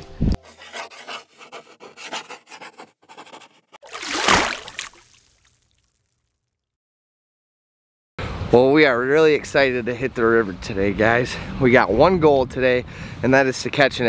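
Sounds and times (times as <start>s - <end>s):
pen scratching on paper: 0.4s - 3.8s.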